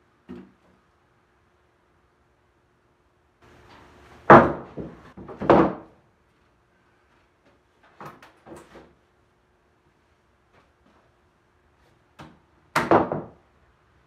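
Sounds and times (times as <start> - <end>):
wooden bench top thudding: 4.3 - 5.9, 12.8 - 13.4.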